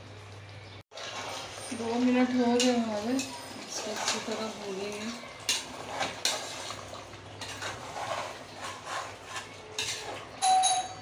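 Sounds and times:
spatula scraping a metal pot: 1.0s - 10.4s
metallic ring: 10.4s - 11.0s.

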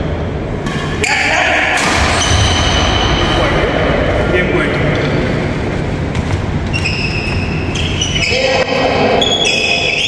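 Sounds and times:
low rumble of hall: 0.0s - 10.0s
sports shoes squeaking on wood: 6.6s - 8.4s.

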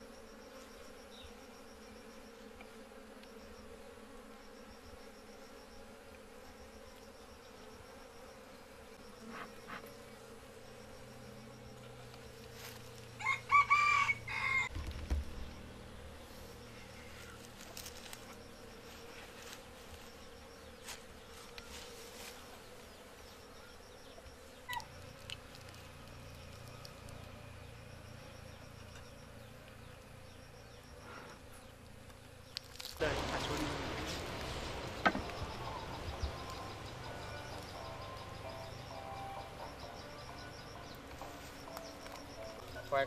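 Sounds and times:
bees buzzing: 0.0s - 43.0s
rooster crowing: 13.2s - 14.7s.

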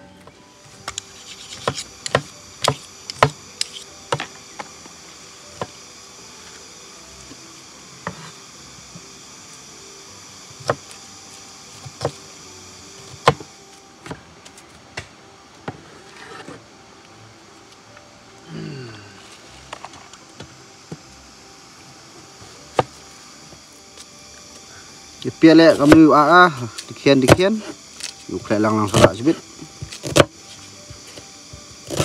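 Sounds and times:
cleaver chopping on cutting board: 0.8s - 4.3s, 8.0s - 8.3s, 11.8s - 12.2s, 13.1s - 13.5s, 25.7s - 26.1s, 27.2s - 28.1s, 28.9s - 30.4s.

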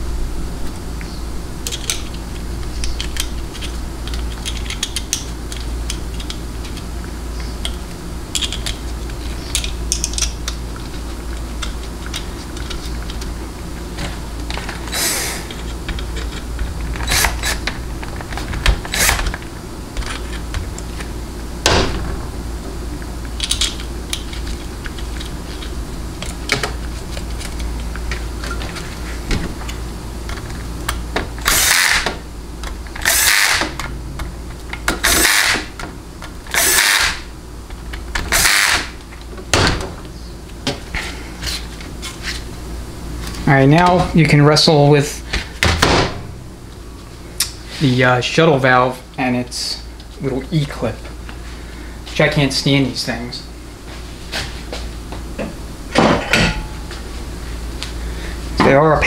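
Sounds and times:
low hum: 0.0s - 35.2s
small metal parts clicking: 7.6s - 8.8s, 9.5s - 10.6s.

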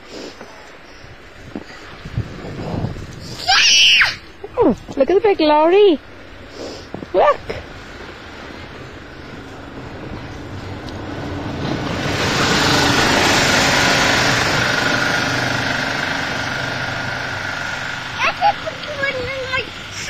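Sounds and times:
rushing hiss: 6.2s - 7.8s
lorry engine running: 7.6s - 20.0s.

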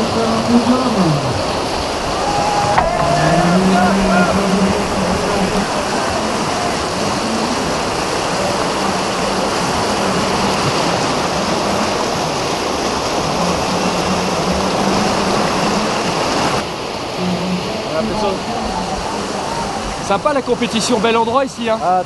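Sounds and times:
whitewater rapids rushing: 0.0s - 22.0s.

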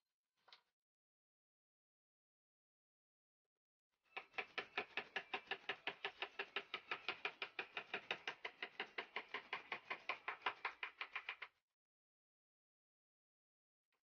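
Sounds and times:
scratching strokes on wood: 4.2s - 11.4s.

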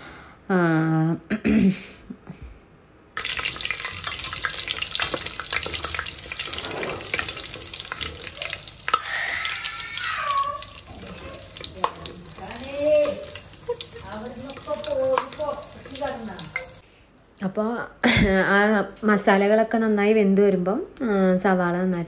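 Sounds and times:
spices sizzling in oil: 3.2s - 16.8s.

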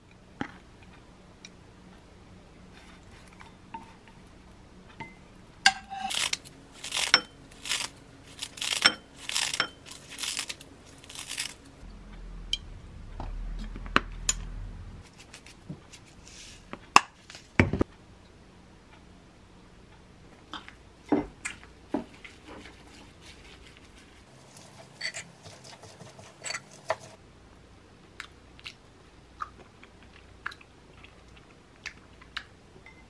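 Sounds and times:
low hum: 9.7s - 15.2s.

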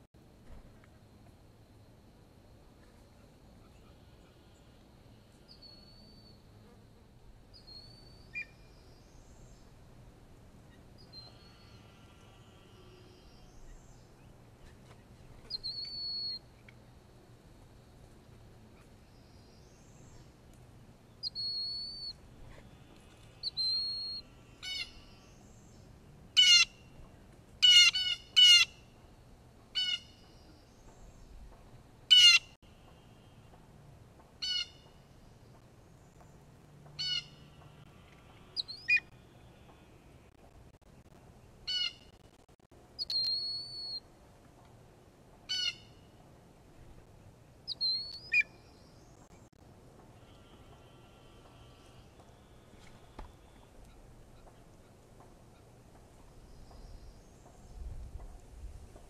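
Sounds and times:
thin whistled bird notes: 5.5s - 6.4s, 15.4s - 16.4s, 21.2s - 25.2s, 43.0s - 44.0s, 47.7s - 49.0s.

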